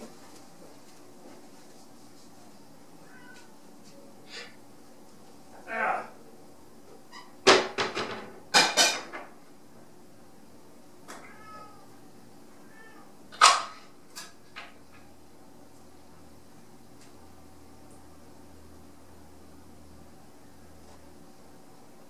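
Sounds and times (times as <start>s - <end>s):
cats calling: 11.2s - 12.0s.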